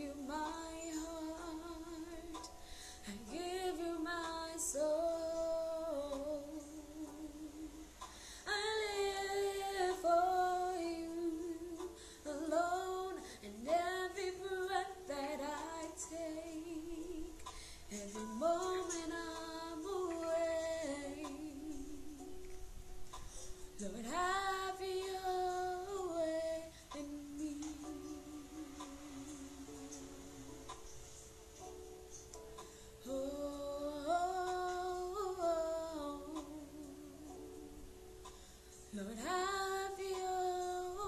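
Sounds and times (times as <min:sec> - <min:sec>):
woman singing: 0:00.0 - 0:07.9, 0:08.5 - 0:22.4, 0:23.8 - 0:30.4, 0:33.0 - 0:37.8, 0:38.9 - 0:41.0.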